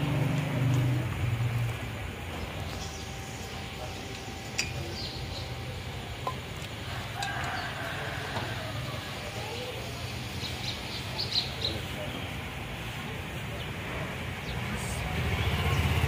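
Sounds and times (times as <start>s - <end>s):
steady low street hum: 0.0s - 16.0s.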